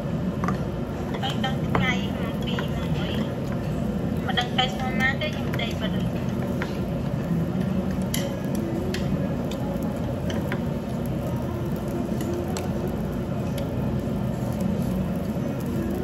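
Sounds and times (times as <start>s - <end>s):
low room hum: 0.0s - 16.0s
metal chopsticks clicking on dishes: 7.9s - 9.6s.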